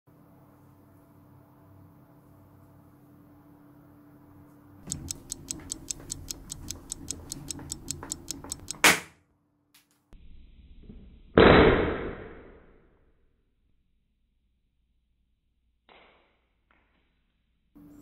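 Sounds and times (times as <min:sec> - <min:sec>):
fast clock ticking: 0:04.9 - 0:09.0.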